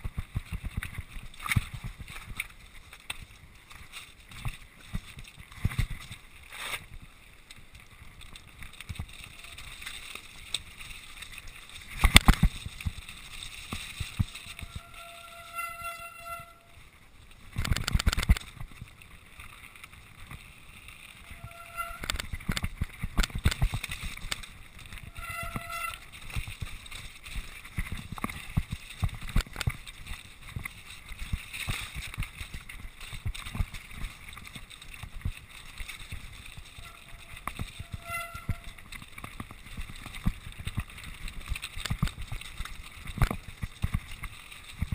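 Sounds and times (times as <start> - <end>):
wind rushing over camera: 0.0 - 15.0, 16.9 - 44.9
bike rattling over rocks: 0.0 - 44.9
high squeals: 14.3 - 16.8, 21.2 - 22.2, 25.0 - 26.1, 36.7 - 38.8.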